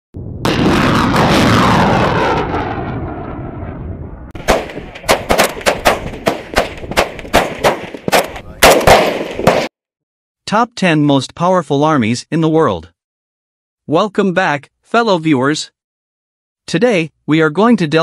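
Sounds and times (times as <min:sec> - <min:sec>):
rocket launch rush: 0:00.2 - 0:09.7
rifle single shots: 0:04.4 - 0:09.7.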